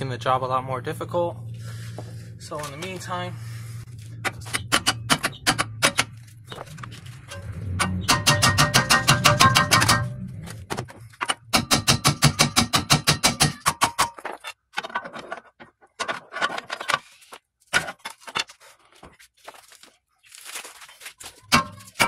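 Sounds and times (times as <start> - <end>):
hammer striking metal: 4.3 - 6.2, 7.3 - 10.3, 11.2 - 14.2.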